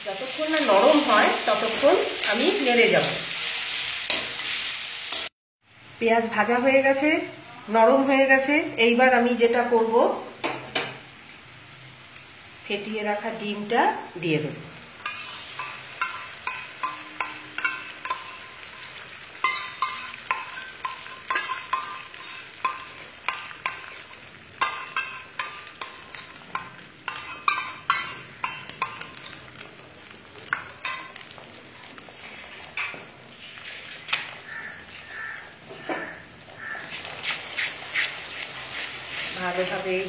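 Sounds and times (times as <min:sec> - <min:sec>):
eggs sizzling in oil: 0:00.0 - 0:40.0
utensil scraping a wok: 0:15.0 - 0:29.6, 0:30.5 - 0:40.0.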